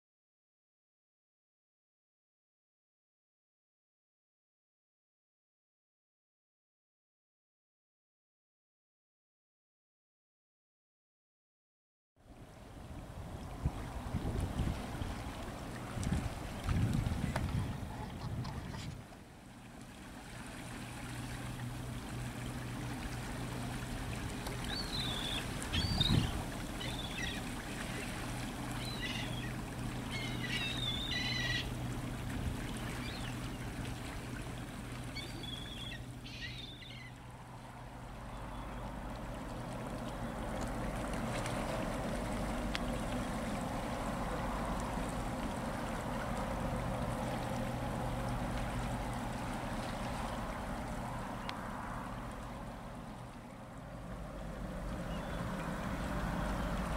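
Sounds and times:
low ship engine drone: 0:12.2 - 0:56.9
wind noise on microphone: 0:13.2 - 0:19.1, 0:25.6 - 0:26.5.

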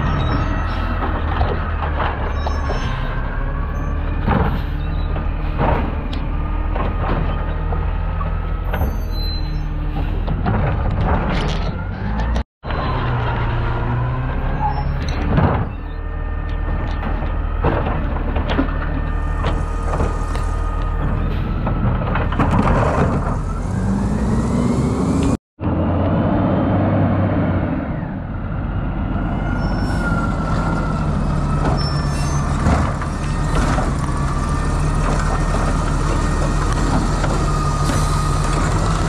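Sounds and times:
truck arm knocks and clunks: 0:04.1 - 0:12.4, 0:15.0 - 0:23.4, 0:31.4 - 0:34.2.

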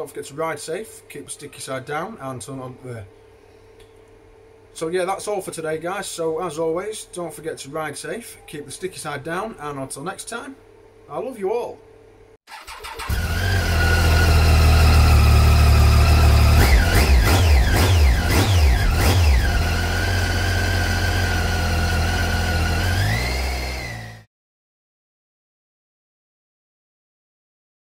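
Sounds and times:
motorcycle engine idling and revving: 0:12.6 - 0:24.3.

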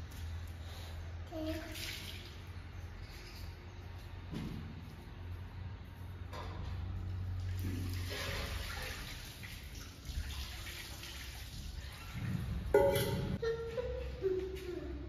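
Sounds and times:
water splashing onto stone: 0:07.3 - 0:12.2.

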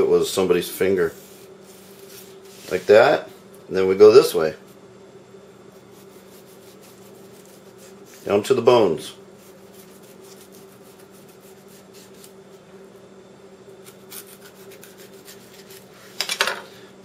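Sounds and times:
knife slicing fish: 0:05.8 - 0:08.3, 0:09.4 - 0:12.4, 0:13.8 - 0:16.2.

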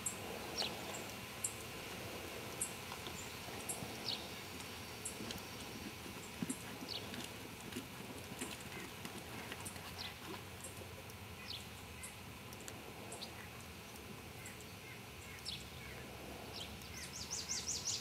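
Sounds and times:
horse hooves trotting on sand: 0:01.8 - 0:11.5.

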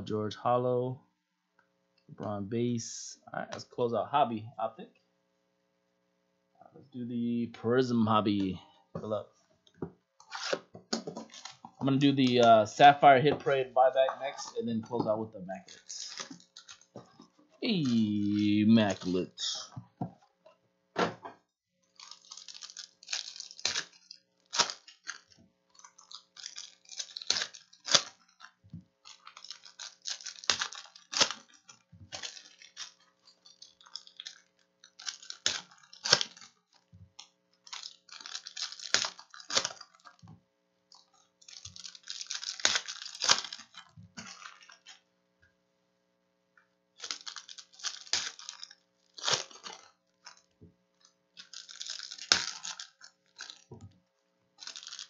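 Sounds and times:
foil wrappers crinkling and tearing: 0:11.2 - 0:12.5, 0:15.5 - 0:19.7, 0:21.8 - 0:40.3, 0:40.9 - 0:45.0, 0:47.0 - 0:53.8, 0:54.6 - 0:55.0.

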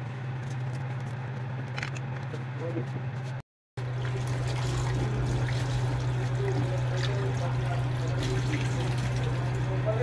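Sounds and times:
tap water running onto plate: 0:03.8 - 0:10.0.

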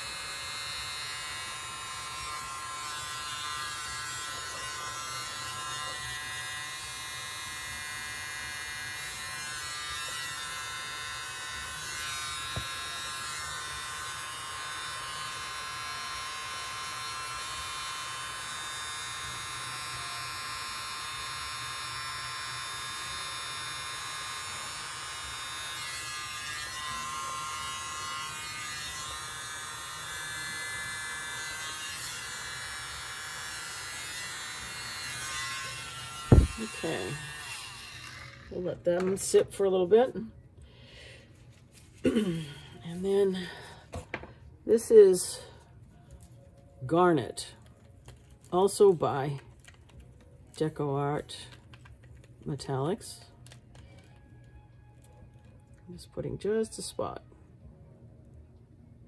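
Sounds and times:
mini leaf blower whining: 0:00.0 - 0:38.7.

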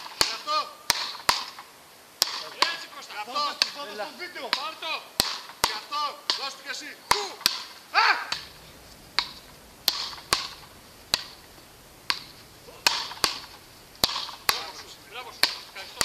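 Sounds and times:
wooden paddles hitting ball: 0:00.0 - 0:16.0
person shouting: 0:06.8 - 0:08.5.

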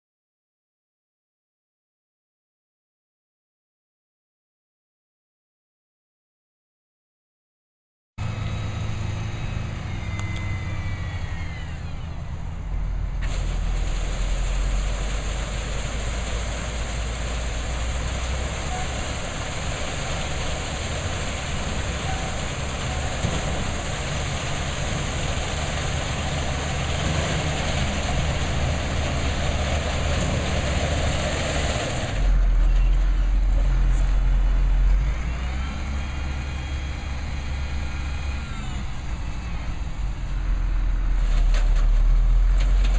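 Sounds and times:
truck engine running under load: 0:08.2 - 0:42.9.

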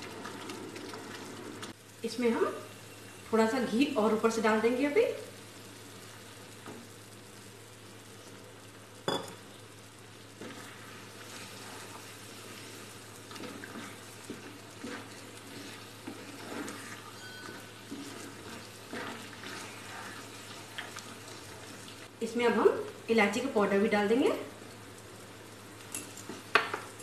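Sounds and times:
mixture sizzling in ghee: 0:00.0 - 0:27.0
wooden spatula scraping a pan: 0:10.4 - 0:22.0.

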